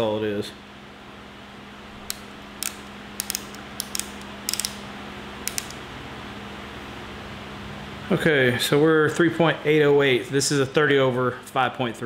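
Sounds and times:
steady low hum: 0:00.0 - 0:12.0
micrometer ratchet clicking: 0:02.0 - 0:05.8.

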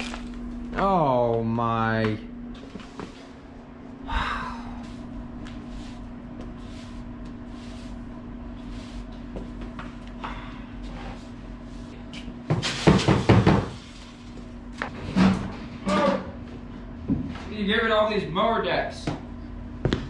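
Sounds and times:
steady hum: 0:00.0 - 0:20.0
push broom sweeping concrete: 0:04.8 - 0:09.2.

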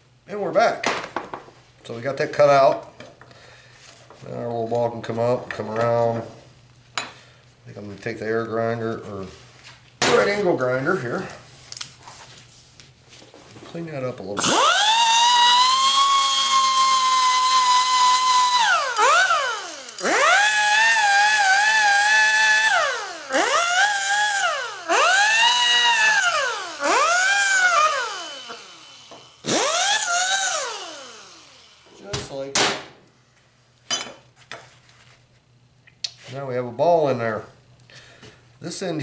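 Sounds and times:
air grinder grinding steel: 0:14.4 - 0:31.9.

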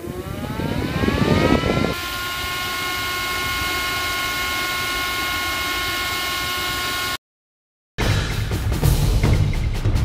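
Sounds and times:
motor whining: 0:00.0 - 0:07.2.

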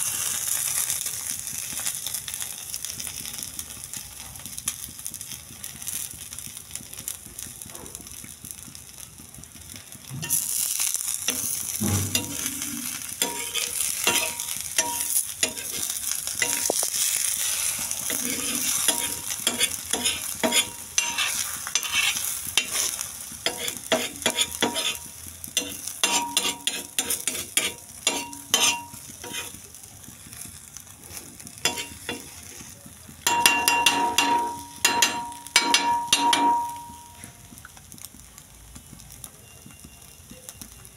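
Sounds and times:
egg sizzling on a griddle: 0:00.0 - 0:40.9
metal spatula scraping griddle: 0:10.2 - 0:29.6, 0:31.0 - 0:32.7, 0:33.3 - 0:37.2.

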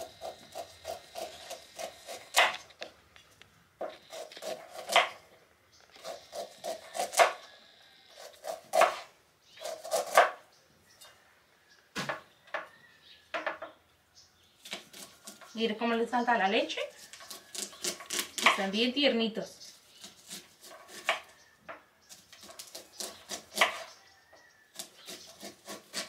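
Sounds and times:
knife slicing corn: 0:00.0 - 0:02.7, 0:03.8 - 0:05.2, 0:06.0 - 0:07.5, 0:08.1 - 0:10.4, 0:17.0 - 0:18.7, 0:19.9 - 0:21.4, 0:22.1 - 0:24.0, 0:24.7 - 0:26.0.

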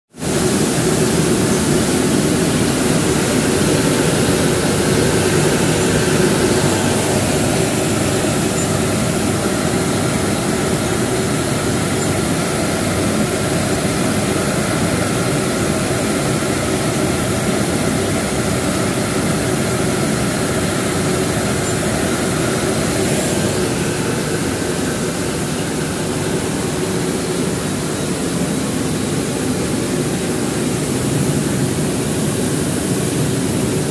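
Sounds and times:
milling machine running: 0:00.2 - 0:33.9.

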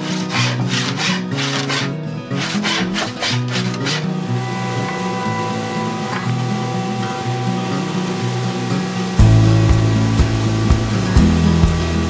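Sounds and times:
background music with held tones: 0:03.4 - 0:12.0.

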